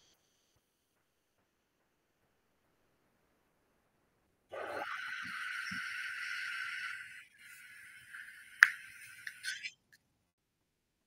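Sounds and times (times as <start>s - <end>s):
high-pitched hiss: 4.5s - 9.8s.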